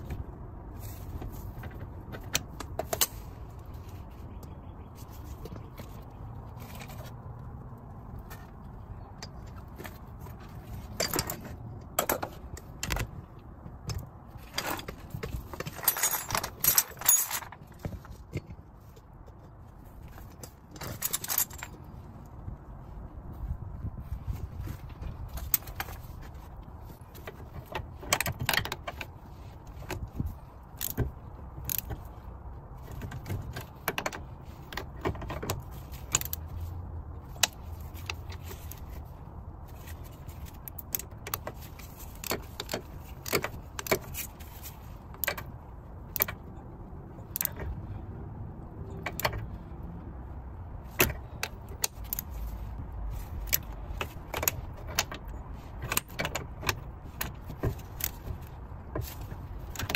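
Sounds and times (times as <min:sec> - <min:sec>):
ratchet metal clicks and clinks: 0:35.5 - 0:36.6, 0:47.2 - 0:47.8.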